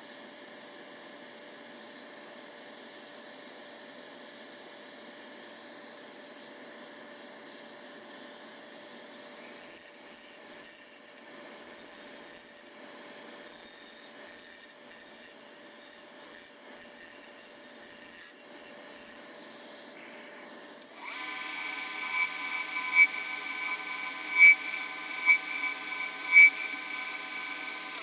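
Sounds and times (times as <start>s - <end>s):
tool scraping spinning wood: 9.4s - 12.8s, 13.4s - 28.0s
wood lathe humming: 9.6s - 28.0s.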